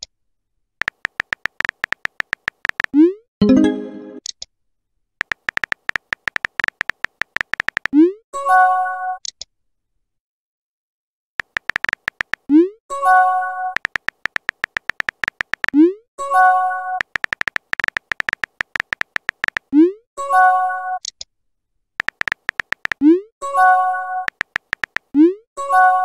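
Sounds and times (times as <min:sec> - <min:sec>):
keyboard typing clicks: 0:00.8 - 0:03.1, 0:05.2 - 0:08.0, 0:11.4 - 0:12.6, 0:13.8 - 0:15.8, 0:17.0 - 0:19.7, 0:22.0 - 0:23.2, 0:24.3 - 0:25.2.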